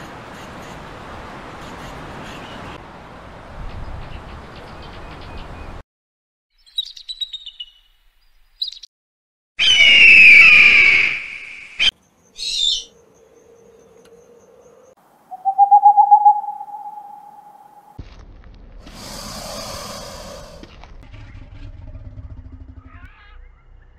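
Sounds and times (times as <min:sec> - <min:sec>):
eagle calling: 0:15.3 - 0:18.0
owl hooting: 0:15.3 - 0:18.0.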